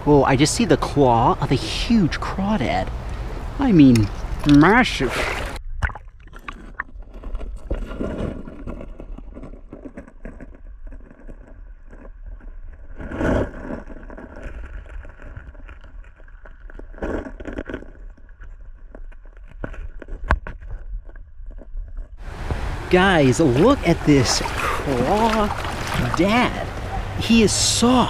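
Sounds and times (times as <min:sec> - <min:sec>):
water swells: 0:00.0 - 0:07.0, 0:22.2 - 0:28.0.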